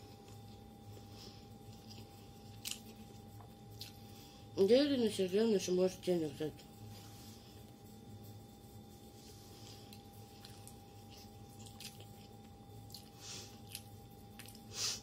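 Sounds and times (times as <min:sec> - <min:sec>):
steady low hum: 0:00.0 - 0:15.0
person chewing: 0:01.7 - 0:04.1, 0:09.9 - 0:15.0.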